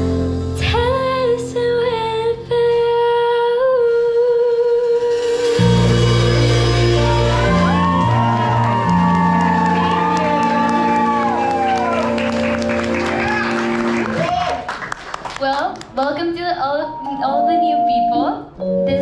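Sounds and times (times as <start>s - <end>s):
deep bass notes: 5.2s - 14.3s.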